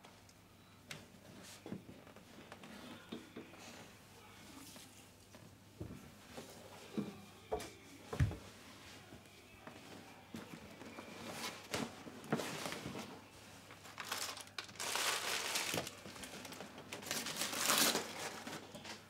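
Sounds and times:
plastic snack packets crinkling: 0:13.7 - 0:19.0.

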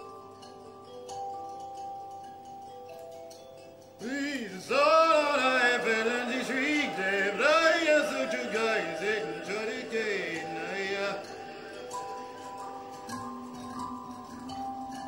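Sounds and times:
faint ambient music tones: 0:00.0 - 0:15.0
man chanting wordlessly: 0:04.0 - 0:12.4.

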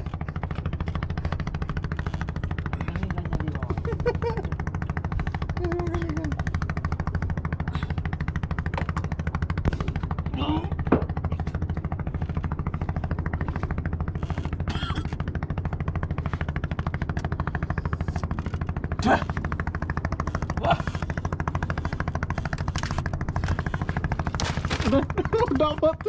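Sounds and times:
boat engine putt-putt: 0:00.0 - 0:26.0
person retching: 0:14.7 - 0:15.2.

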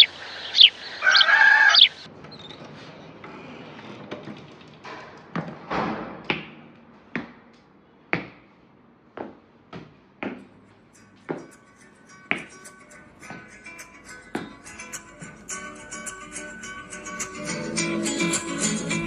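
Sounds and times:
footsteps on tiled floor: 0:09.2 - 0:15.5
soft guitar music: 0:10.9 - 0:19.0.

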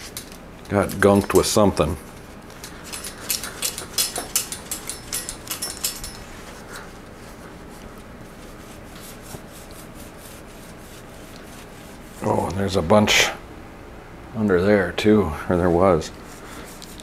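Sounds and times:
low steady hum: 0:00.0 - 0:17.0
scratchy scrubbing strokes: 0:07.1 - 0:12.5.

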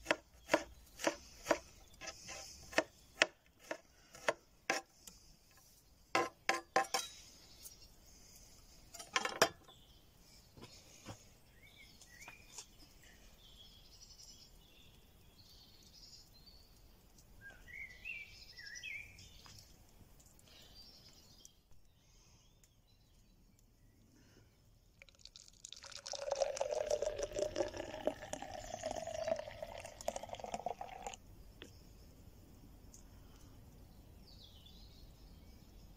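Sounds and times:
knife chopping on wooden board: 0:00.0 - 0:01.7, 0:02.3 - 0:04.8
faint bird chirps: 0:09.6 - 0:25.1
beer pouring into glass: 0:25.0 - 0:31.2.

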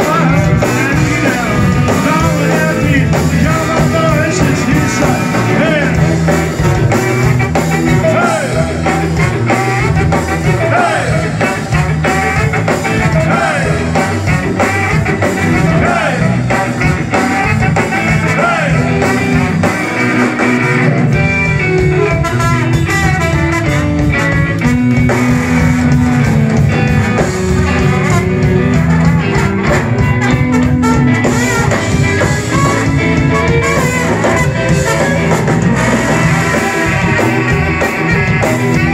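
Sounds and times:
person singing: 0:00.0 - 0:06.0
ska band playing live: 0:00.0 - 0:38.9.

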